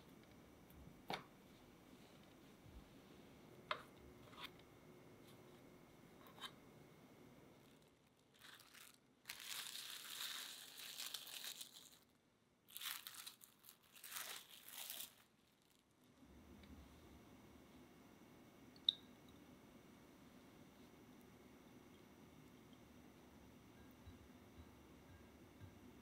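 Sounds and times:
plastic wrap crinkling: 0:07.6 - 0:16.1.

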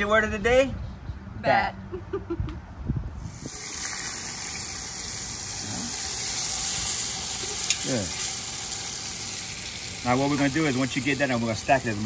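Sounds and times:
meat sizzling in hot oil: 0:03.3 - 0:12.0.

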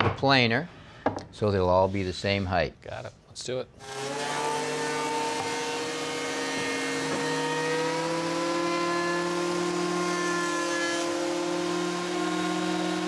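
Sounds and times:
thickness planer motor hum and whine: 0:03.8 - 0:13.0.

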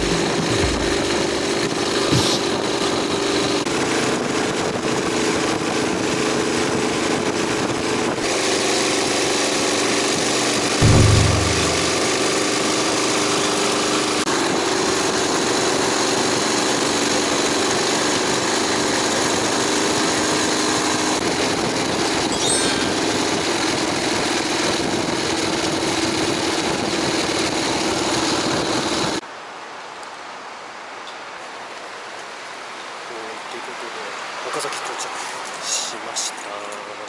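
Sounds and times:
motorcycle engine running: 0:00.0 - 0:03.2, 0:10.8 - 0:12.6
outdoor hiss: 0:02.1 - 0:02.6.

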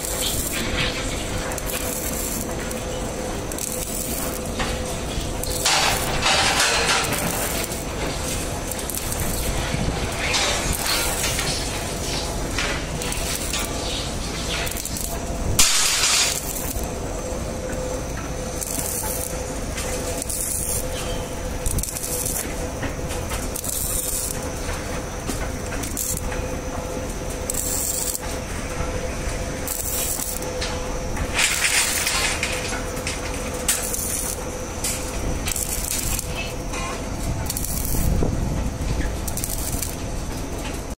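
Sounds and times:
arc welding crackling hiss: 0:00.0 - 0:40.9
steady machine hum: 0:00.0 - 0:40.9.

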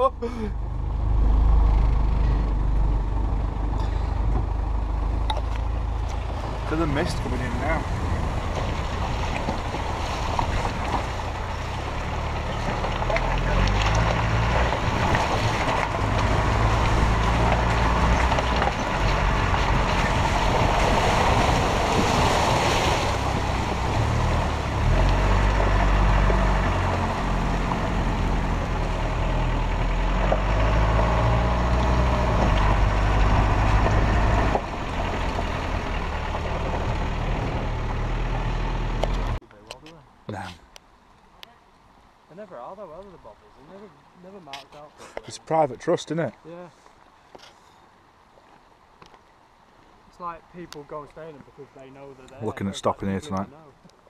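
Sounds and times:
diesel engine pulling over rough ground: 0:00.0 - 0:40.6
water splashing: 0:03.8 - 0:52.7.

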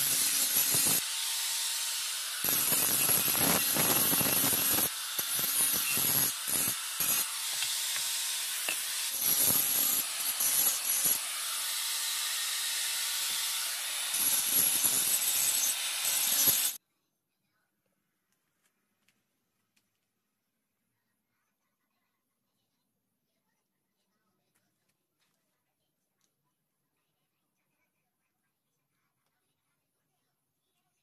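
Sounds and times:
angle grinder grinding metal: 0:00.0 - 0:16.8.

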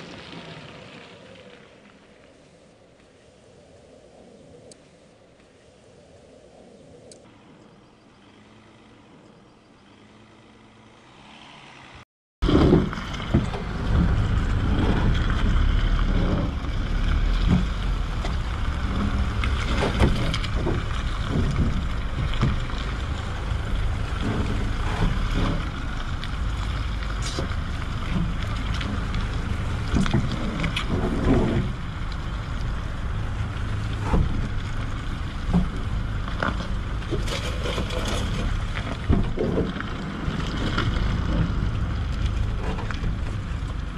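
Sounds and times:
pickup truck rumbling: 0:10.3 - 0:43.9
wind buffeting microphone: 0:12.5 - 0:43.9.

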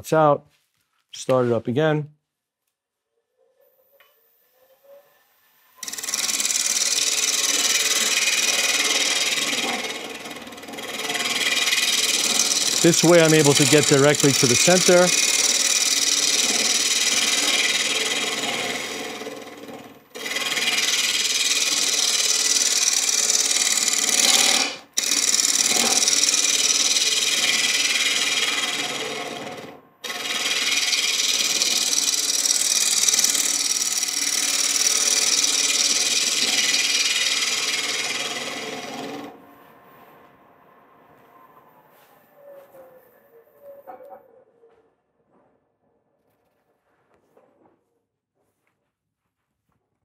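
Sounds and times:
lathe running: 0:05.8 - 0:39.4
lathe tool cutting wood: 0:05.8 - 0:39.4.

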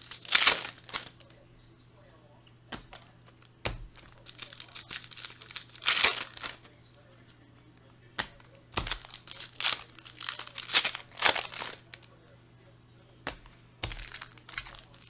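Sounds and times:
foil wrappers tearing and crinkling: 0:00.0 - 0:01.3, 0:03.9 - 0:06.8, 0:08.8 - 0:12.2, 0:13.8 - 0:15.0.

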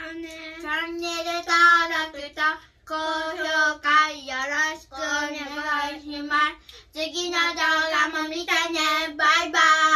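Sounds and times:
child singing: 0:00.0 - 0:09.9.

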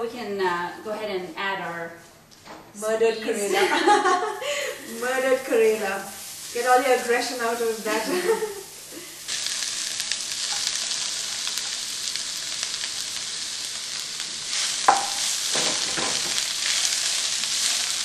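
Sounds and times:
vegetables sizzling in hot oil: 0:03.8 - 0:18.0.

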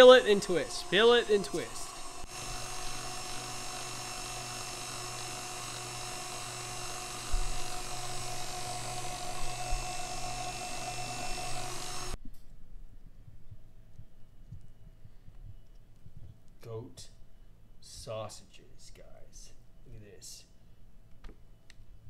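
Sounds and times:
stand mixer motor whining: 0:00.0 - 0:12.2.

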